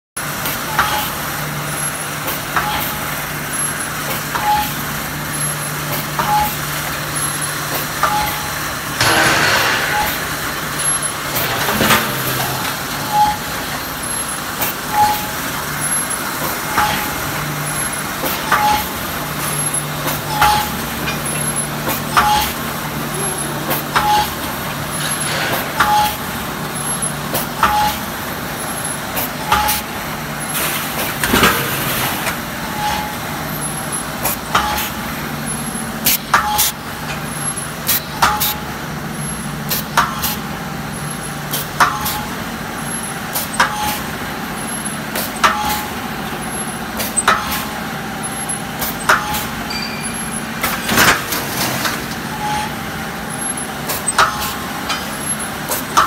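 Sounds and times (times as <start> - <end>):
sharp machine clack: 4.0 - 38.7, 41.5 - 56.0
machine hum: 4.7 - 34.2.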